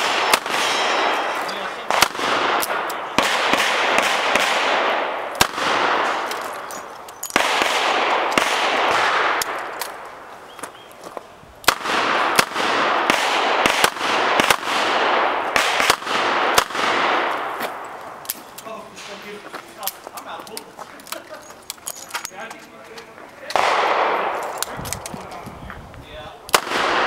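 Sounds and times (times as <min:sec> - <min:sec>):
handgun shots: 0:00.0 - 0:10.0, 0:23.5 - 0:25.1, 0:26.5 - 0:27.0.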